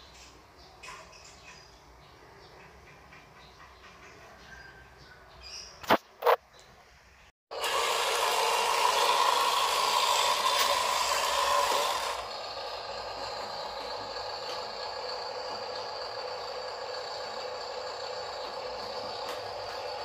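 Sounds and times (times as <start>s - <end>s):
electric toy truck motor whirring: 7.5s - 20.0s.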